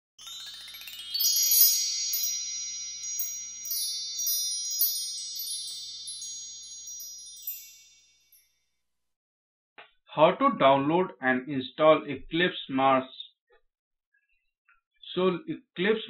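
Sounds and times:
shimmering chime: 0.1s - 8.7s.

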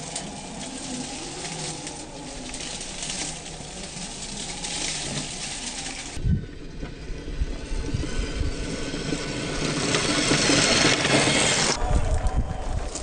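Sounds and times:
tyres crunching on gravel: 0.0s - 6.2s.

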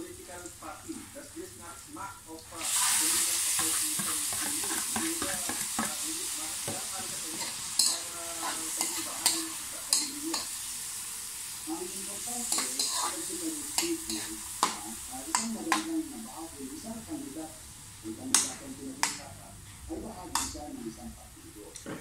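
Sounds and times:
tomatoes sizzling in oil: 0.0s - 21.6s
spatula scraping pan: 2.6s - 10.7s, 12.1s - 15.9s.

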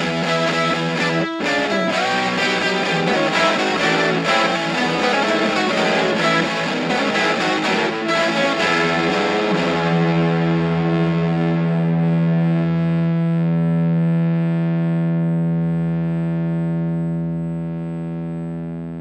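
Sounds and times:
distorted electric guitar: 0.0s - 19.0s.

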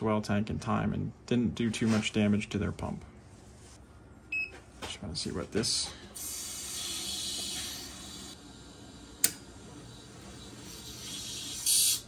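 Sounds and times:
faint pump hum: 0.0s - 12.0s
water hissing from drain valve: 10.4s - 12.0s.

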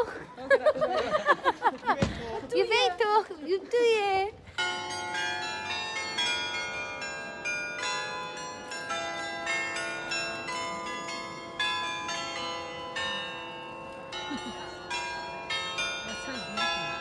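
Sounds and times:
carillon bells playing a tune: 4.6s - 17.0s.

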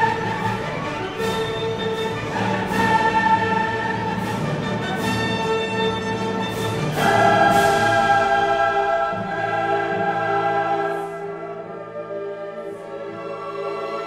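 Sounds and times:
choral singing: 0.0s - 5.8s, 6.4s - 14.0s
orchestra: 0.0s - 14.0s.

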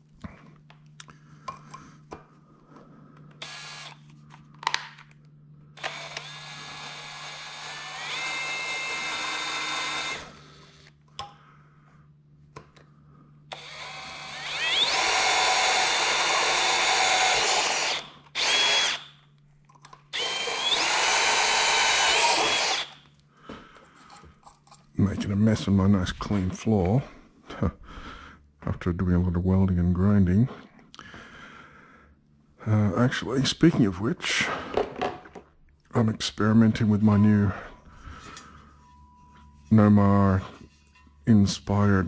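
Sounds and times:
cordless drill boring through metal: 3.4s - 4.0s, 5.8s - 10.9s, 13.5s - 19.2s, 20.1s - 23.0s.

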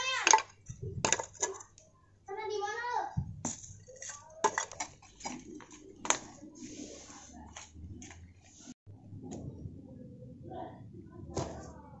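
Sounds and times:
pot shards and stones clattering: 0.1s - 1.8s, 3.5s - 5.6s.

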